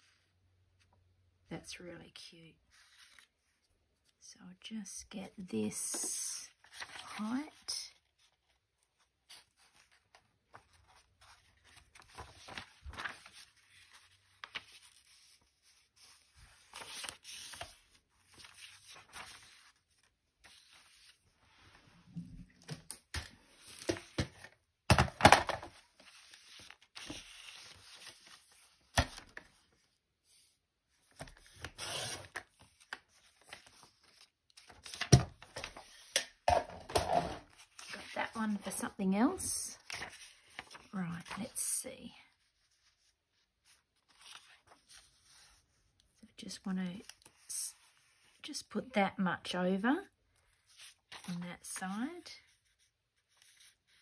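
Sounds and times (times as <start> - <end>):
paper rustling and sliding: 9.2 - 22.0, 25.5 - 29.6, 39.8 - 41.5.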